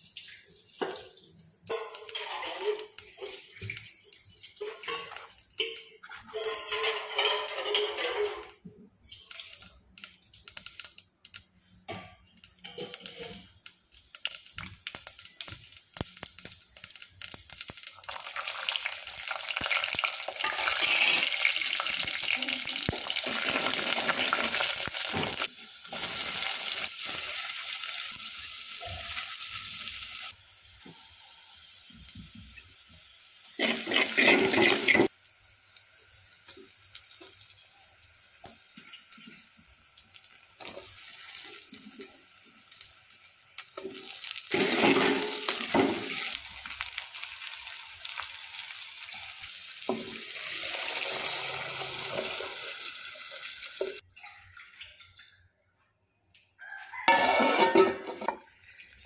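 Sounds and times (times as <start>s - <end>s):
onions sizzling in oil: 1.8s - 11.0s, 12.2s - 54.0s
water being poured in: 44.1s - 46.6s.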